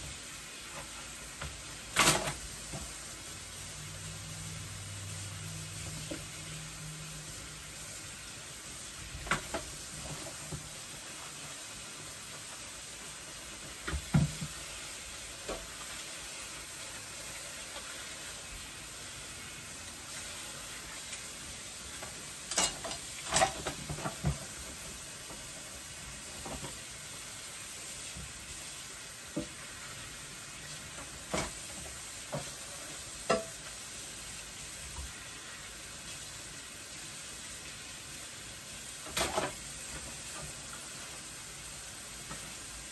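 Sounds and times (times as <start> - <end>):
running tap water: 0.0 - 42.9
dishes clinking: 22.5 - 24.4.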